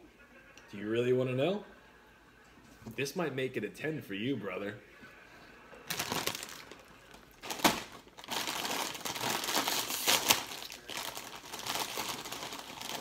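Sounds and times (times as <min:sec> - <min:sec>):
chip bag crinkling: 0:05.9 - 0:13.0
chips crushing: 0:05.9 - 0:13.0.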